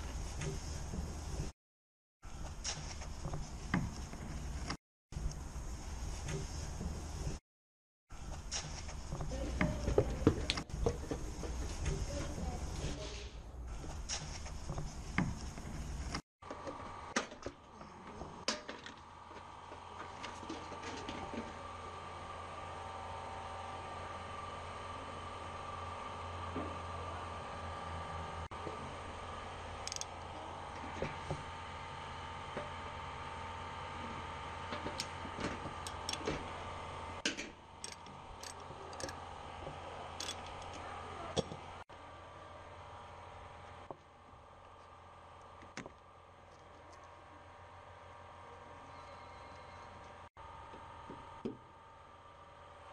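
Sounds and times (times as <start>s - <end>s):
plastic parts clicking: 29.9s - 30.1s, 37.3s - 39.2s, 40.2s - 40.8s.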